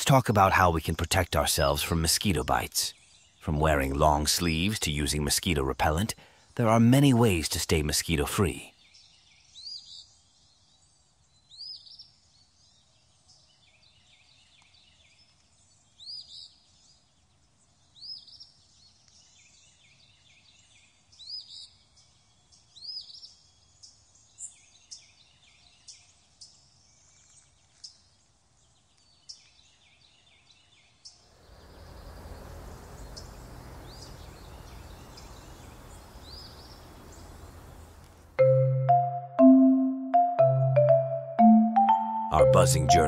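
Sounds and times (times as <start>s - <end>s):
songbirds chirping and calling: 0.0s - 38.3s
outdoor background hiss: 31.2s - 38.4s.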